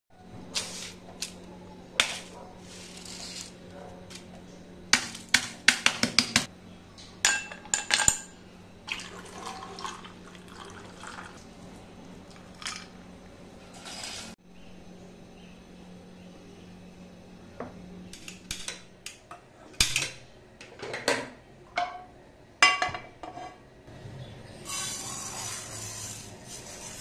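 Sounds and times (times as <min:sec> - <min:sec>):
milk pouring: 0:08.9 - 0:11.6.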